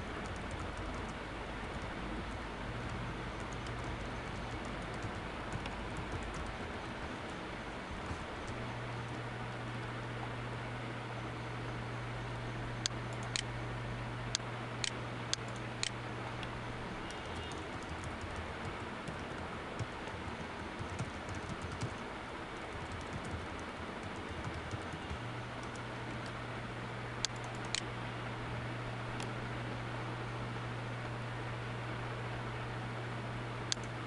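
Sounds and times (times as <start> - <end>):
low hum and hiss: 0.0 - 34.0
typing on computer keyboard: 0.2 - 7.3, 17.1 - 22.0, 22.6 - 26.4.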